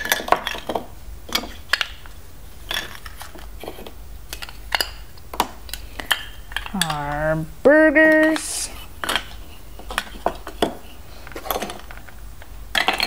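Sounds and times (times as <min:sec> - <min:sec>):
plastic bricks clicking together: 0:12.7 - 0:13.0.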